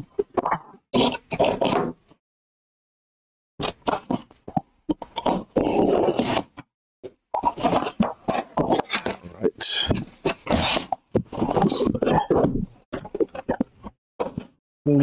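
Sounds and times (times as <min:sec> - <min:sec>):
blade scraping cardboard tape: 0:05.2 - 0:06.6, 0:07.4 - 0:09.2, 0:09.9 - 0:11.9.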